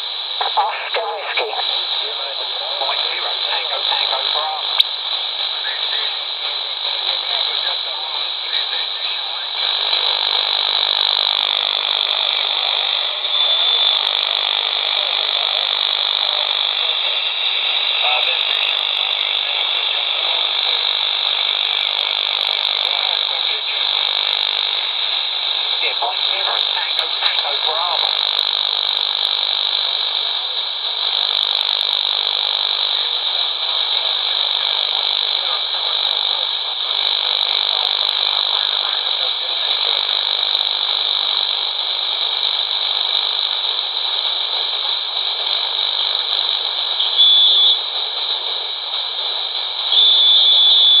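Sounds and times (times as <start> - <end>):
shortwave radio static: 0.0 - 51.0
high whistle: 13.2 - 14.1, 47.0 - 47.9, 49.9 - 51.0.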